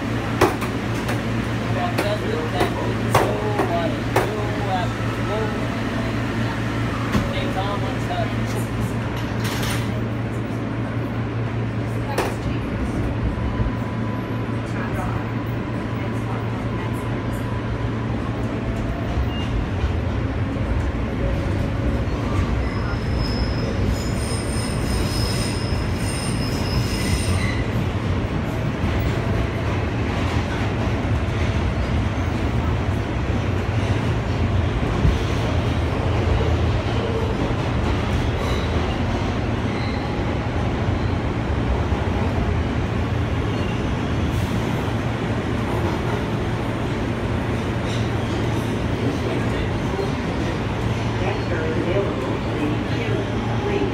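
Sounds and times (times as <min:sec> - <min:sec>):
train wheels rumbling on rail: 0:00.0 - 0:53.9
high-pitched wheel squeal: 0:22.6 - 0:27.7.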